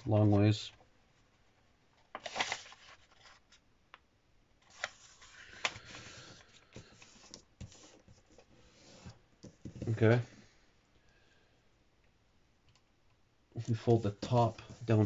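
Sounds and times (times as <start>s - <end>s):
paper rustling and sliding: 2.1s - 3.6s, 4.6s - 10.1s.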